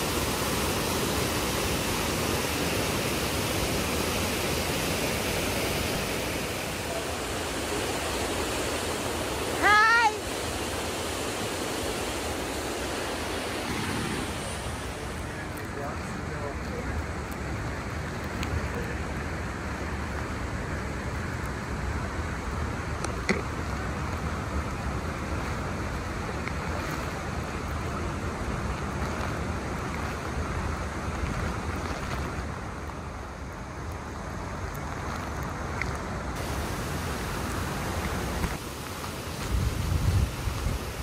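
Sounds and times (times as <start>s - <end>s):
waterfall rushing: 0.0s - 31.9s, 36.0s - 41.0s
wind rumble on microphone: 13.6s - 41.0s.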